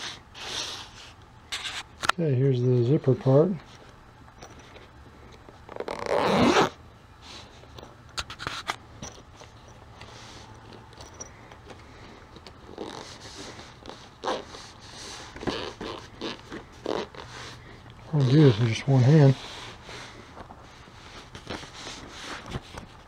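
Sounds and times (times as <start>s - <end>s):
zipper pulled open: 5.7s - 6.8s, 12.7s - 18.8s.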